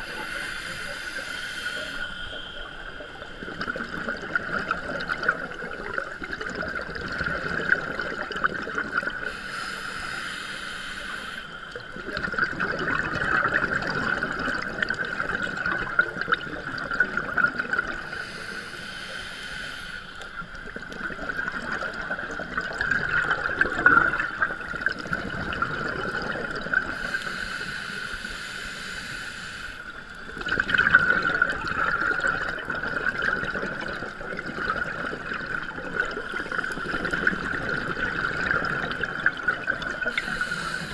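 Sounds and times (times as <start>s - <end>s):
regulator inhale hiss: 0.0s - 3.4s, 9.2s - 11.9s, 18.0s - 20.8s, 26.5s - 30.4s, 39.3s - 40.9s
exhaled bubbles gurgling: 0.0s - 28.1s, 29.9s - 40.9s.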